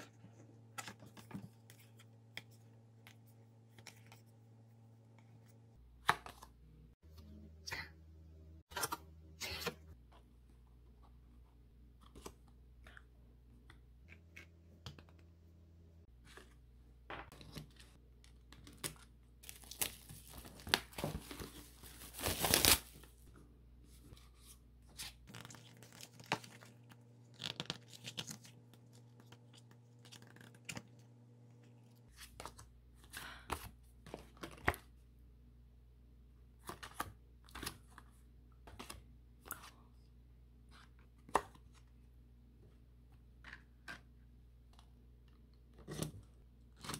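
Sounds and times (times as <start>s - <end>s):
packaging tearing and crinkling: 22.0s - 23.0s.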